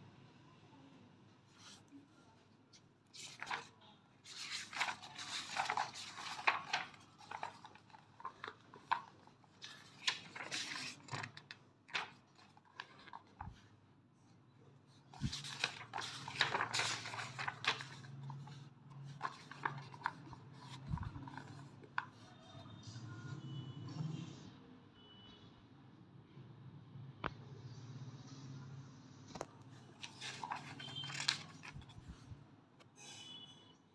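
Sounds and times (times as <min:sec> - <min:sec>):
book pages rustling: 0:02.7 - 0:13.7, 0:14.9 - 0:22.3, 0:29.3 - 0:32.4.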